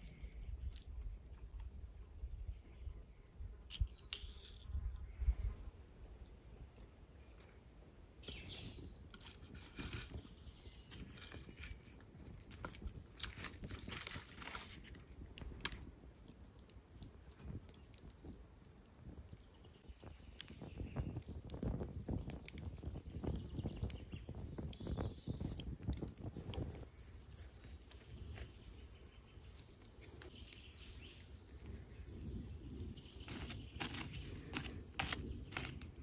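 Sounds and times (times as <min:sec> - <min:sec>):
wood fire crackling: 0:06.2 - 0:36.0
coals poked with stick: 0:08.2 - 0:18.4, 0:29.4 - 0:36.0
sticks knocking over coals: 0:33.3 - 0:36.0.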